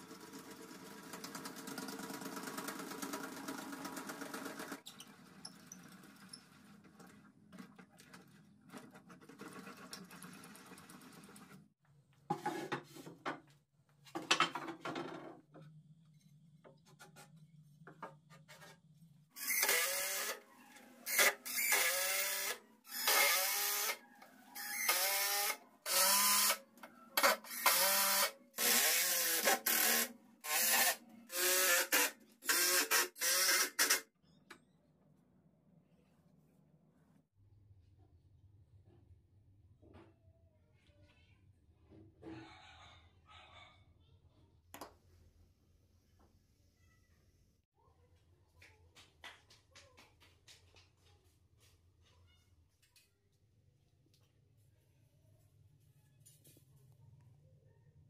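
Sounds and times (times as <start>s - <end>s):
small power tool running: 19.4s - 20.4s, 21.1s - 24.0s, 24.6s - 26.6s, 27.2s - 34.0s.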